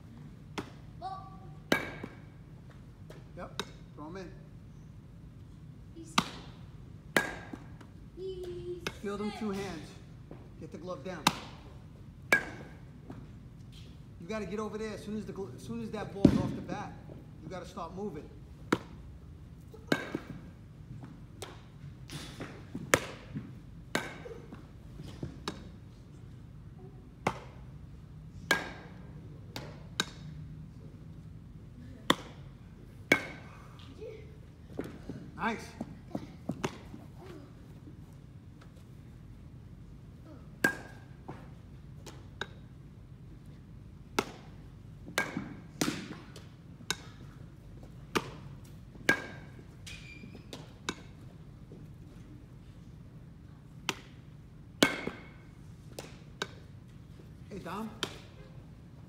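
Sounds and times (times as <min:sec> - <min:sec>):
baseballs bouncing and caught: 0:00.0 - 0:04.0, 0:05.1 - 0:14.6, 0:15.8 - 0:59.0
baseball bat hits: 0:01.6 - 0:02.4, 0:06.1 - 0:07.8, 0:11.2 - 0:11.7, 0:12.3 - 0:13.2, 0:19.8 - 0:20.5, 0:21.4 - 0:25.8, 0:27.2 - 0:27.6, 0:28.4 - 0:30.3, 0:32.1 - 0:33.7, 0:40.5 - 0:42.7, 0:44.1 - 0:47.4, 0:48.0 - 0:51.2, 0:53.8 - 0:54.2, 0:54.8 - 0:56.7, 0:57.6 - 0:58.5
baseball knocks: 0:01.7 - 0:02.3, 0:16.1 - 0:16.7, 0:44.1 - 0:47.3, 0:54.8 - 0:56.8.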